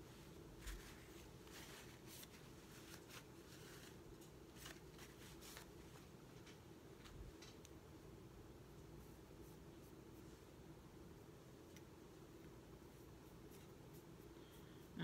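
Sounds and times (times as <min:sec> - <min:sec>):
paper towel rustles and ticks: 0:00.0 - 0:07.6
faint room hum: 0:00.0 - 0:15.0.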